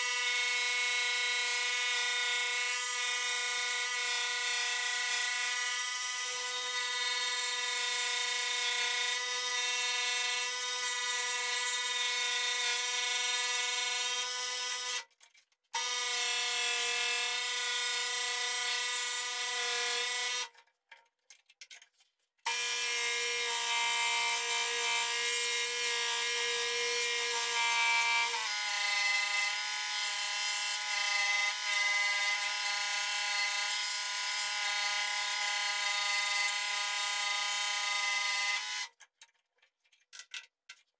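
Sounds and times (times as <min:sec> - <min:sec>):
scroll saw cutting wood: 0:15.8 - 0:20.5, 0:22.5 - 0:39.0.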